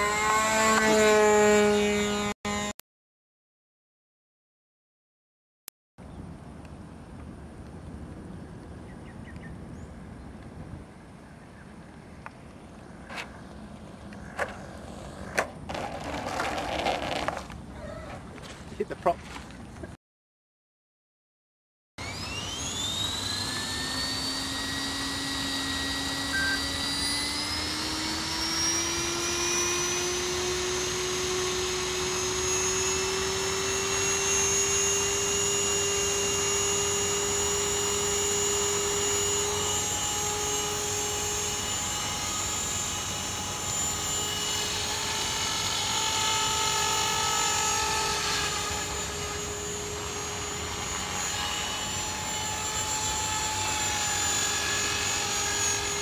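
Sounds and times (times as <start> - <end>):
rc helicopter rotor whine: 0.0 - 2.7, 12.9 - 17.6, 22.0 - 56.0.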